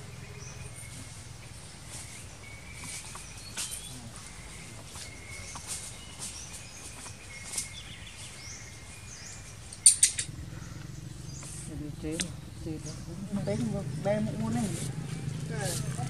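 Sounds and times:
high bird chirps: 0.0 - 14.3
sharp chirps or clicks: 9.7 - 10.3.

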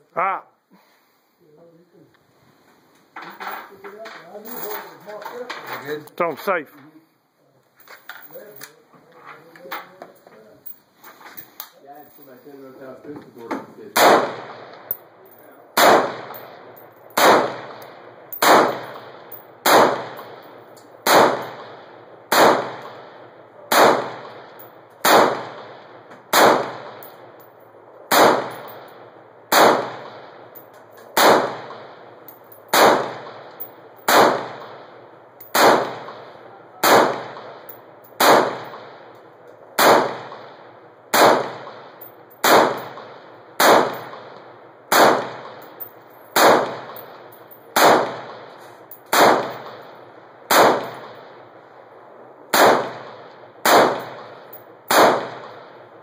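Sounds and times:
rifle single shots echoing: 13.8 - 56.0.

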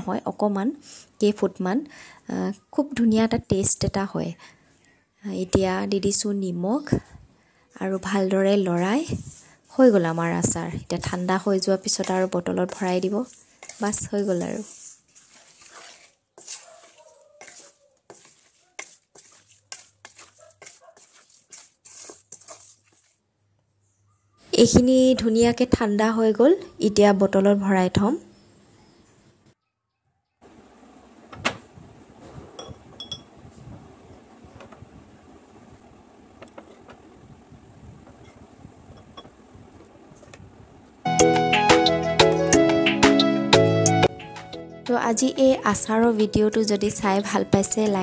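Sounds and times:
wooden spatula scraping metal pan: 11.9 - 23.1
metal spoon clinking on plate and jar: 32.6 - 33.3.

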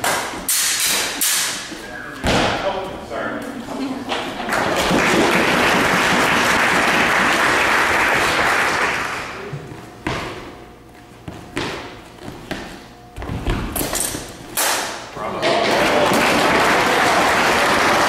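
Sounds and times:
audience applauding: 4.5 - 9.4, 15.7 - 18.0.

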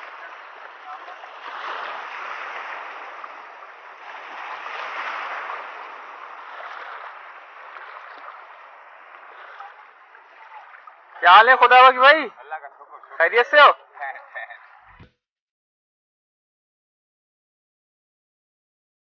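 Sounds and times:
seawater sloshing and lapping: 0.0 - 15.0.

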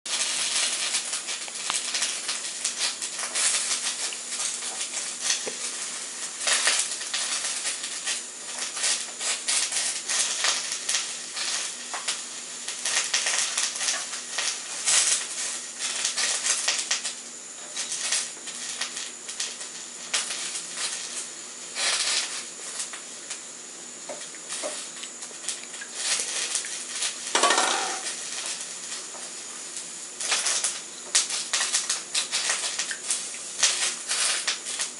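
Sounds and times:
metal pot clinking on tiled floor: 27.4 - 28.1.

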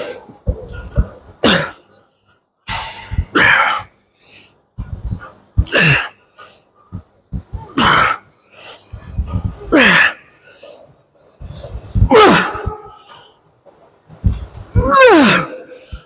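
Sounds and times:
short low thumps: 2.7 - 3.6, 4.8 - 5.7, 6.9 - 7.9, 9.0 - 9.7.

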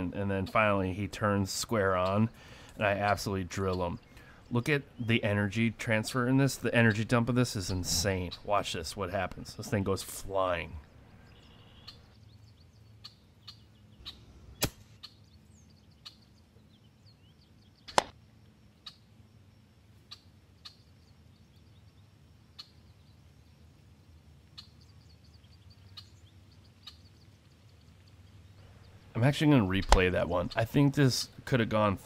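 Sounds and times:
bird chirps: 1.9 - 9.8, 10.6 - 31.4
air rifle shot crack: 14.6 - 15.0.

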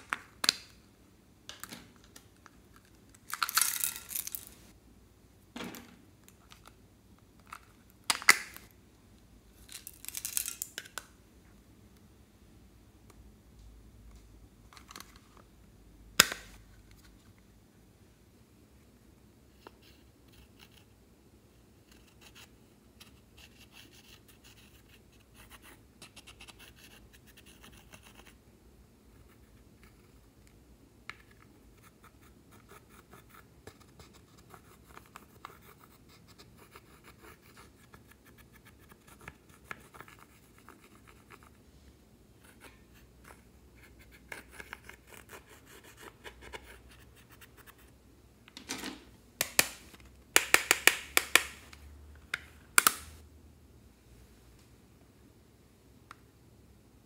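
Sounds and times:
sharp clicks and taps: 49.4 - 51.6.

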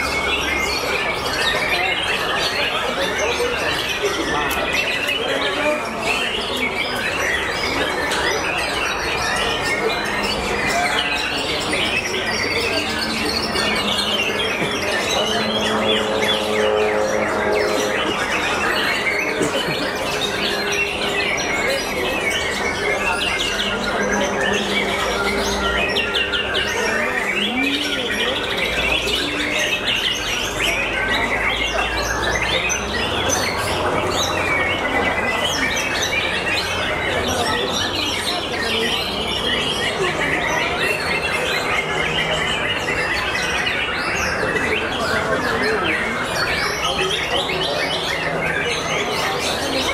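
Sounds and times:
low background din: 4.0 - 37.7.

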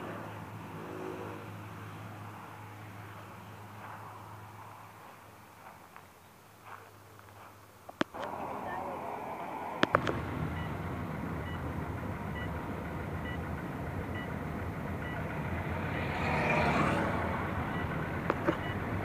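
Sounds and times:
car engine and road noise: 0.0 - 19.0
faint electronic beeps: 7.9 - 15.4, 16.1 - 19.0.

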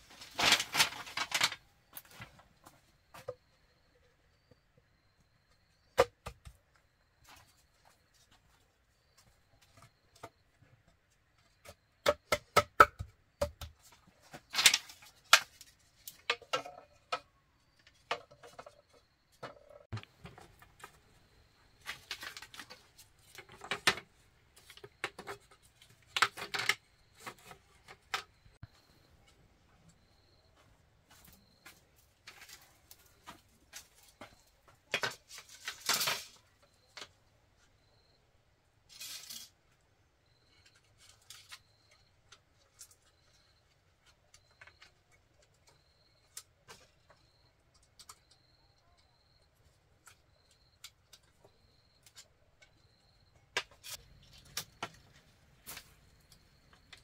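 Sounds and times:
objects knocking and tapping: 9.2 - 21.2, 21.8 - 28.7.

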